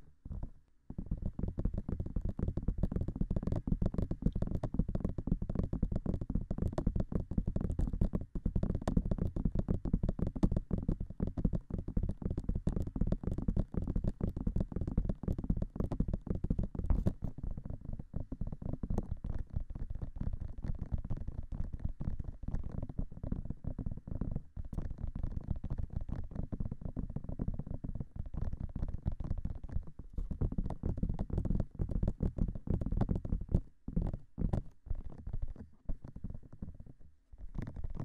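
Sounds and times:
fingertips tapping on microphone: 0.0s - 38.0s.

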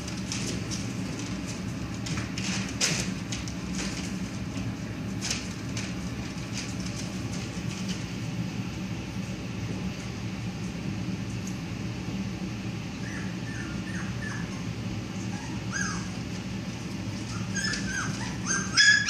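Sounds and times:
steady low hum: 0.0s - 19.0s
puppies whimpering and yipping: 13.0s - 16.4s, 17.1s - 19.0s.

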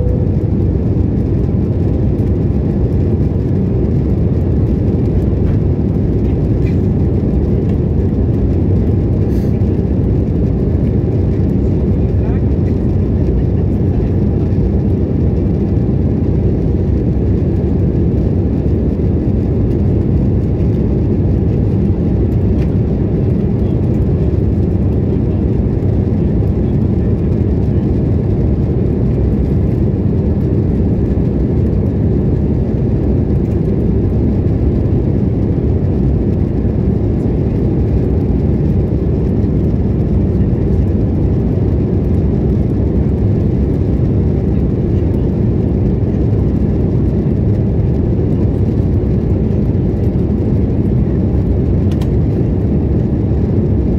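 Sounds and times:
aircraft cabin engine and airflow rush: 0.0s - 53.9s.

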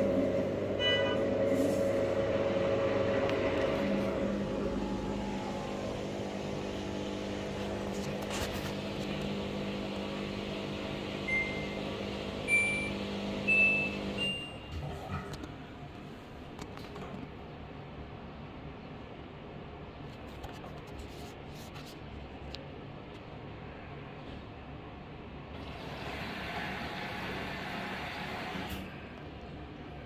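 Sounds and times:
washing machine humming: 0.0s - 16.5s, 25.5s - 30.0s.

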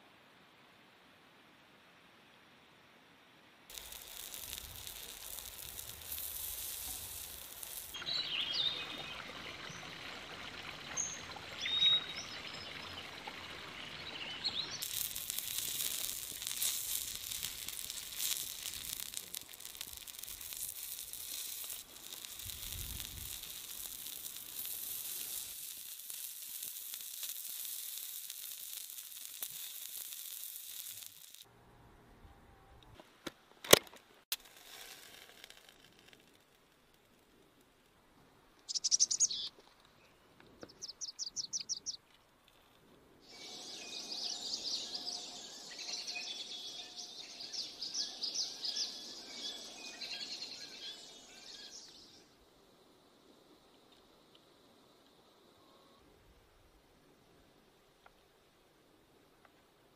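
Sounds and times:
meat sizzling on a grill: 3.7s - 8.8s, 14.0s - 31.5s, 43.3s - 52.0s.

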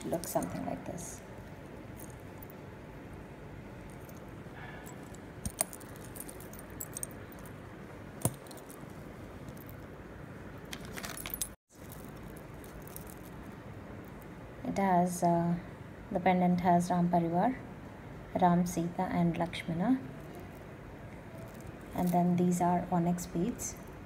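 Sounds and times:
jewellery clinking and jingling: 0.0s - 2.8s, 3.8s - 7.6s, 8.2s - 9.9s, 10.7s - 13.5s, 20.1s - 22.6s.

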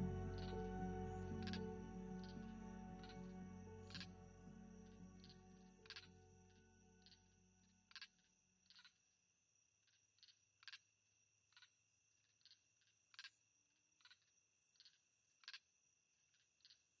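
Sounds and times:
faint high whine: 0.0s - 7.9s.

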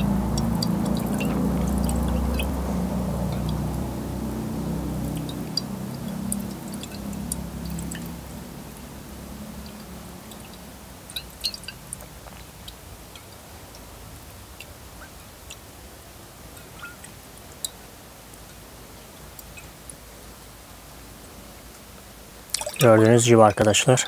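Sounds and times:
water sloshing in a glass beaker: 0.0s - 18.6s, 22.5s - 23.6s
small clicks and ticks: 9.5s - 13.9s.

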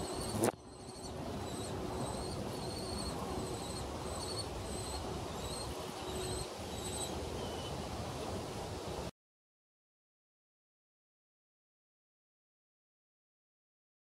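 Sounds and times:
young kestrels calling: 0.0s - 7.8s.

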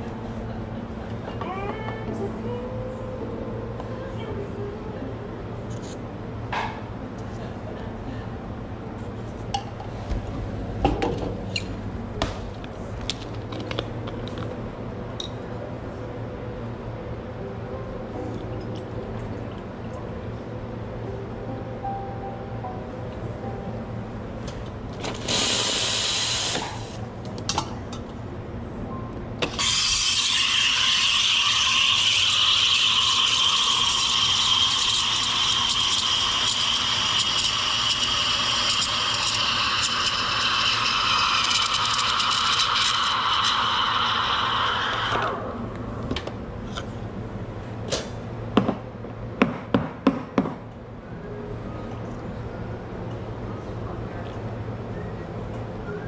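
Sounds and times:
steam wand hissing: 25.2s - 26.9s
milk steaming with high tone: 25.2s - 27.0s, 29.6s - 45.6s.

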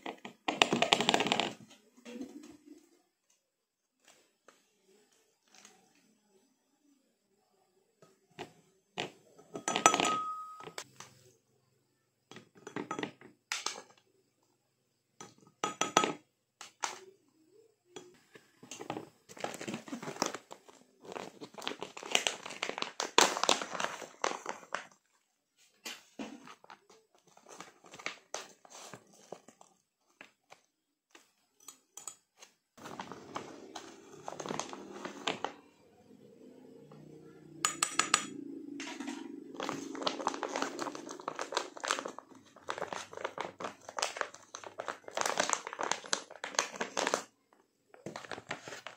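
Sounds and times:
spoon clinking against glass: 9.6s - 10.8s
plastic pouch crinkling: 19.4s - 25.0s, 39.6s - 47.3s.

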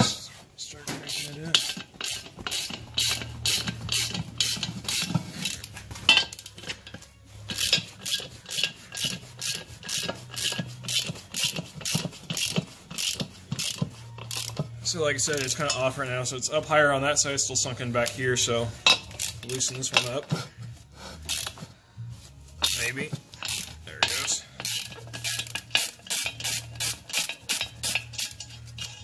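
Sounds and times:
socket ratchet clicking: 1.1s - 6.8s, 7.5s - 14.7s, 21.3s - 21.6s, 22.6s - 29.0s.

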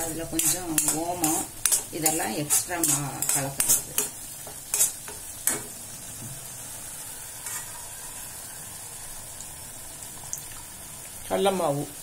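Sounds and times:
gravy sizzling in pan: 0.0s - 12.0s.

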